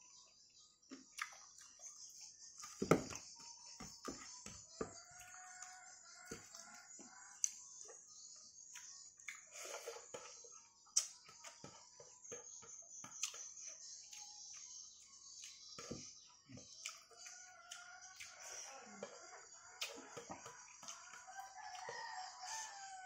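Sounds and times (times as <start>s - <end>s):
chewing smacks: 1.1s - 2.0s, 13.0s - 14.6s.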